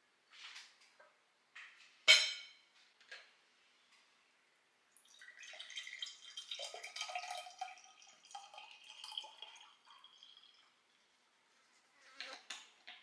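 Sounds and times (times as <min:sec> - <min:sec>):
juice pouring into a glass: 0:04.9 - 0:11.1.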